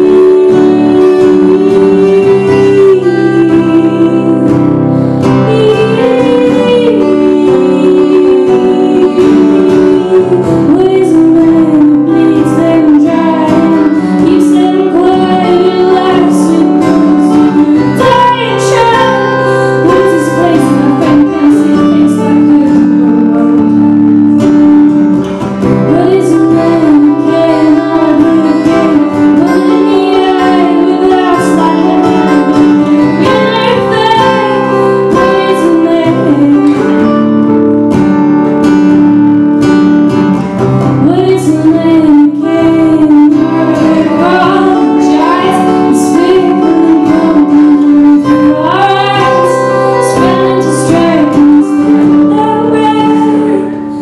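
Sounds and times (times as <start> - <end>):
woman singing: 0.0 - 37.8, 40.9 - 54.0
acoustic guitars playing: 0.0 - 54.0.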